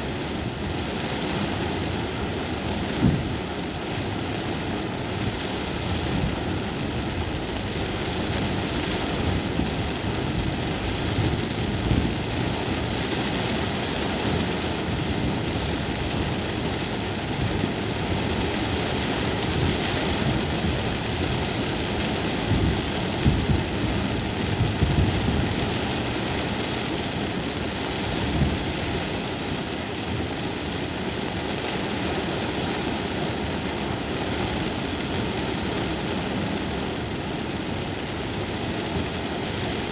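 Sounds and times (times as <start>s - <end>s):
heavy rain on car roof: 0.0s - 39.9s.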